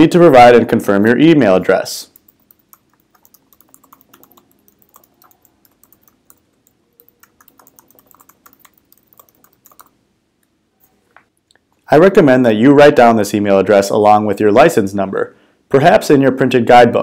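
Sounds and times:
faint keyboard typing: 0:02.1 - 0:10.0.

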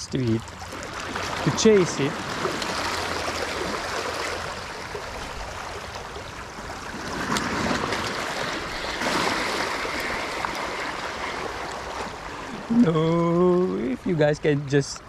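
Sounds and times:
waves washing against rocks: 0:06.7 - 0:12.2.

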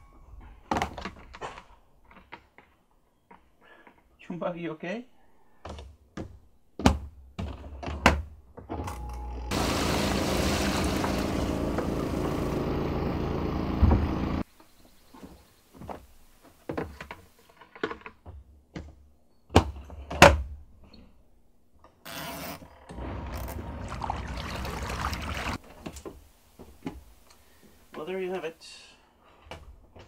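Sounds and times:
washing machine motor running: 0:09.5 - 0:14.4, 0:22.9 - 0:25.6.

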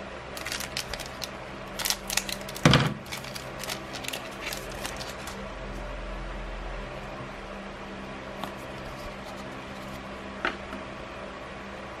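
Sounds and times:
foil wrapper crinkling: 0:00.4 - 0:05.4.

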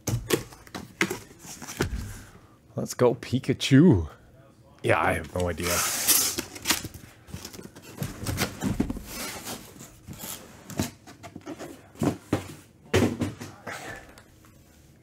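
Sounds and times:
cardboard boxes scraping and rustling: 0:07.4 - 0:11.8.

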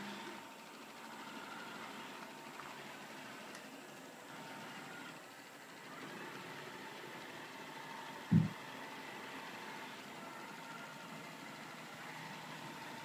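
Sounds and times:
robot vacuum cleaner whirring: 0:04.3 - 0:13.0.

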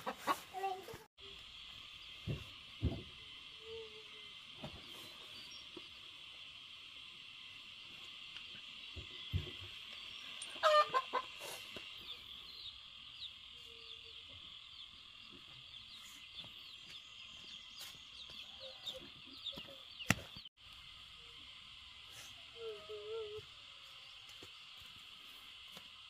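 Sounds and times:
chicken clucking: 0:00.0 - 0:01.0, 0:10.6 - 0:11.5.

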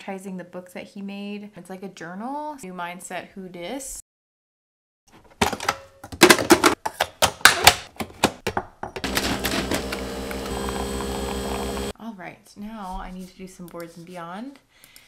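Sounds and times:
coffee machine brewing hum: 0:09.0 - 0:12.0
coffee pouring into a mug: 0:09.1 - 0:11.9.

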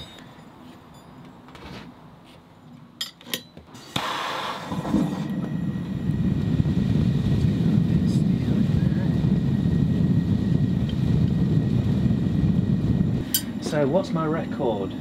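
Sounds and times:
gas burner roaring: 0:03.7 - 0:15.0.

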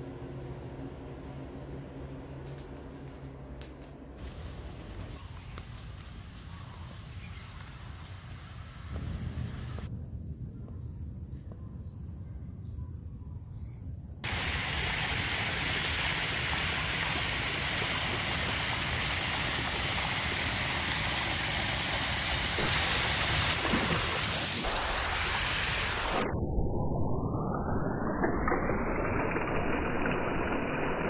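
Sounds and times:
water jets spraying: 0:04.2 - 0:09.9, 0:14.2 - 0:26.2.

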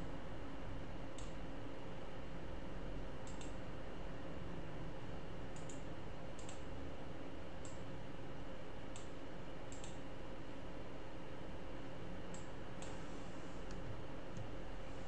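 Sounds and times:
background hum and hiss: 0:00.0 - 0:15.0
computer mouse clicking: 0:03.2 - 0:03.6, 0:05.6 - 0:05.8, 0:06.4 - 0:06.7, 0:08.9 - 0:10.0, 0:12.3 - 0:13.0.

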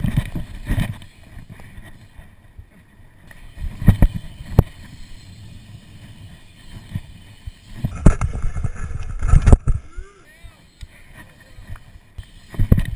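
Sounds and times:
bike tyres rolling on concrete: 0:00.0 - 0:12.9.

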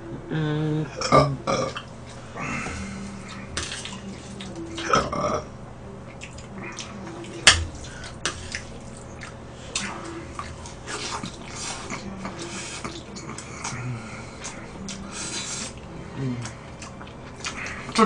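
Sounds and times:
chewing and slurping noodles: 0:06.1 - 0:18.0.

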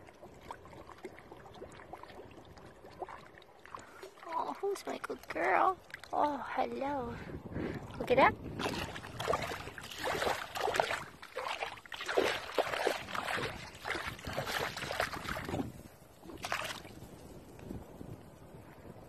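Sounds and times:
faint water wash: 0:00.0 - 0:17.1
splashing steps in shallow water: 0:07.8 - 0:17.0.

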